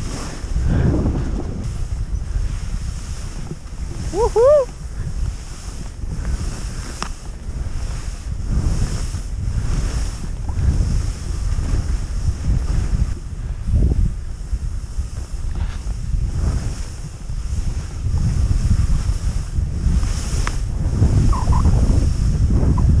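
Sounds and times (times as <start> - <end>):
skis turning through snow: 0.0 - 23.0
wind rushing over microphone: 0.0 - 23.0.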